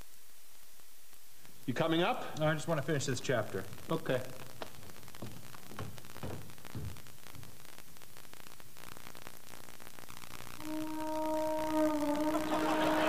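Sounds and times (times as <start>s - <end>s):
steady hiss: 0.0s - 13.0s
footsteps on carpeted stairs: 4.6s - 7.6s.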